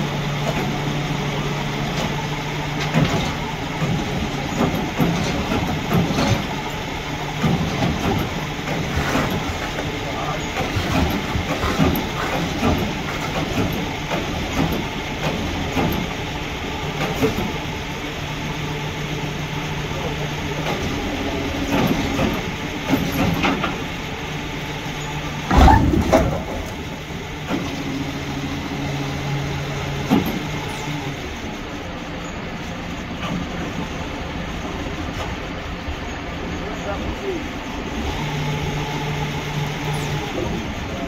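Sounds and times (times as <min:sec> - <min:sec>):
diesel truck engine running: 0:00.0 - 0:41.0
van dropping onto wheels thump: 0:25.4 - 0:26.9.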